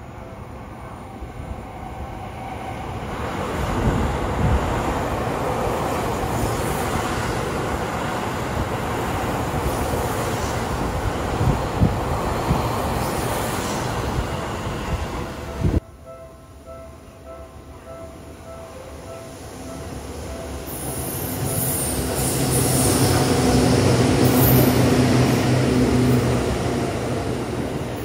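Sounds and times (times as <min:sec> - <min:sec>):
train wheels rumbling on rail: 0:01.9 - 0:15.8, 0:19.7 - 0:28.0.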